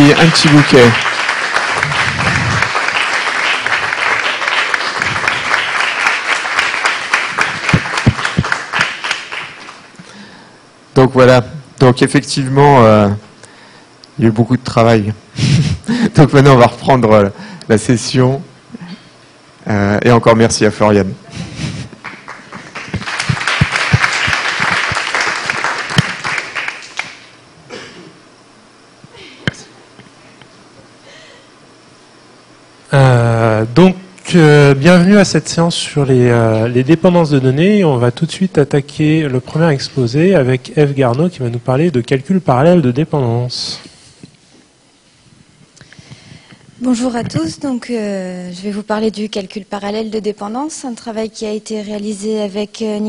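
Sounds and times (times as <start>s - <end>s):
audience applauding: 0.0s - 10.0s, 21.6s - 27.3s.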